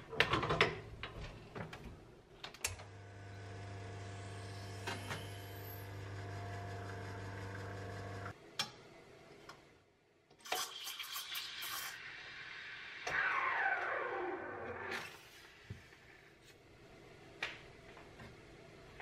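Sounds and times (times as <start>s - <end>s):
espresso machine pump humming: 3.0s - 8.4s.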